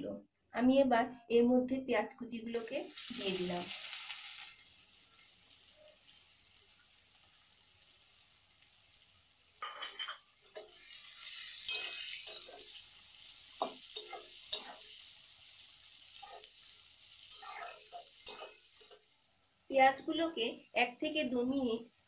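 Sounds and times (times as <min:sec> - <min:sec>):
onions sizzling in oil: 0:02.5 - 0:22.0
spoon scraping and knocking pan: 0:09.6 - 0:12.8, 0:13.5 - 0:15.0, 0:16.2 - 0:19.1.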